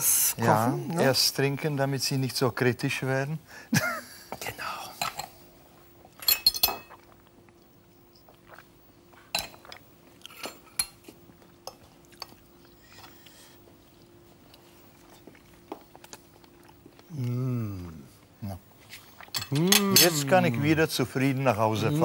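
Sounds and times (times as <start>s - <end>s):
cutlery clinking on plates: 6.2s - 6.9s.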